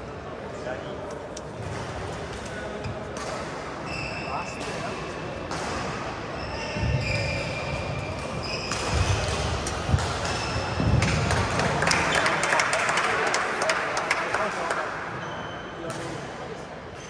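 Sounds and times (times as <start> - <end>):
shoe soles squeaking on floor: 3.8 - 4.8, 6.2 - 9.4, 10.3 - 10.9, 15.2 - 15.8
racket hitting shuttlecock: 7.2 - 11.7.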